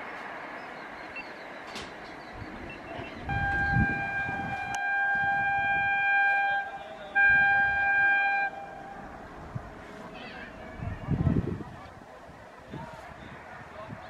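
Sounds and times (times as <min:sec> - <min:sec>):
locomotive horn blasts: 0:03.0 - 0:11.0.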